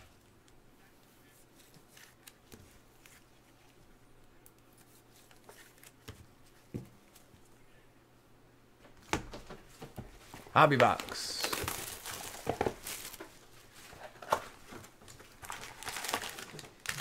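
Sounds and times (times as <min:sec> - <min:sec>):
trading cards handling rustles: 0:01.3 - 0:03.8, 0:04.6 - 0:07.5, 0:09.7 - 0:17.0.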